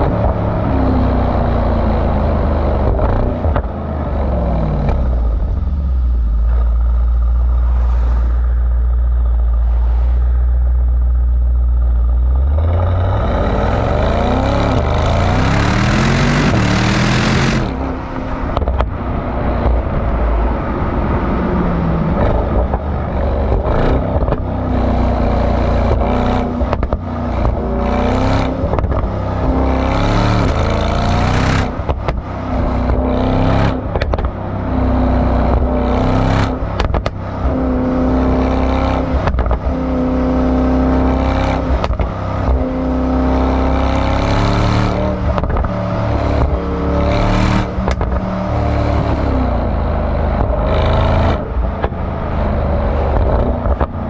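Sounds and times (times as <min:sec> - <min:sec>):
car exhaust accelerating through gears: 0:00.0 - 0:54.0
sharp clicks and thumps: 0:02.7 - 0:03.8, 0:04.8 - 0:05.3, 0:10.6 - 0:20.2, 0:22.1 - 0:24.8, 0:25.4 - 0:34.4, 0:35.4 - 0:42.9, 0:44.4 - 0:54.0.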